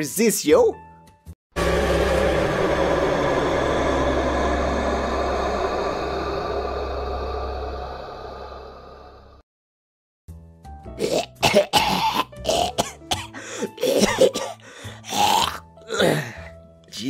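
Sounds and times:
quiet background music: 0:10.7 - 0:17.0
person retching and gagging: 0:11.0 - 0:16.4.

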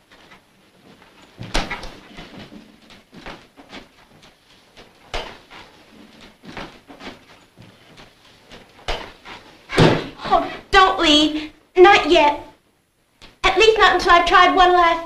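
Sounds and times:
knocks and thumps: 0:00.0 - 0:10.4
footsteps in a room: 0:00.0 - 0:10.6.

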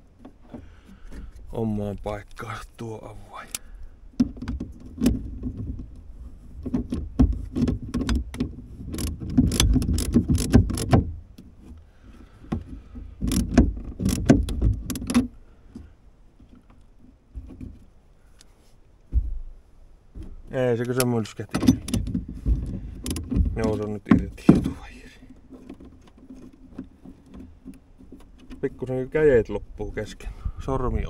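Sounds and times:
hand ratchet clicking: 0:08.9 - 0:11.0, 0:13.2 - 0:15.2.

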